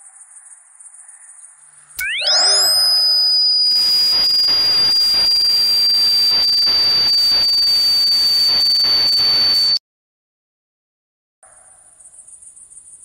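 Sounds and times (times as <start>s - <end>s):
high-pitched ringing tone: 2.0s - 9.8s
crackling static hiss: 2.6s - 9.8s.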